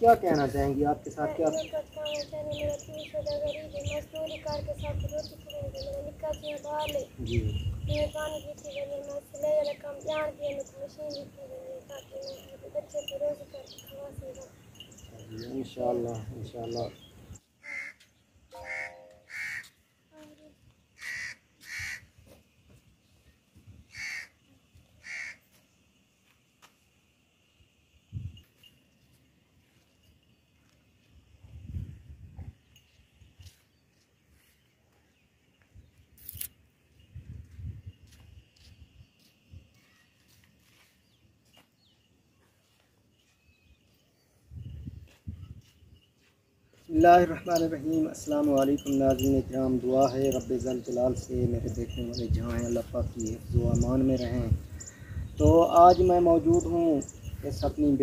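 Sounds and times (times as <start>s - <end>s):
bird calling: 1.2s - 15.8s, 16.6s - 19.8s, 21.0s - 22.1s, 23.9s - 24.4s, 25.0s - 25.5s
faint bird chirps: 1.3s - 21.3s, 38.6s - 58.0s.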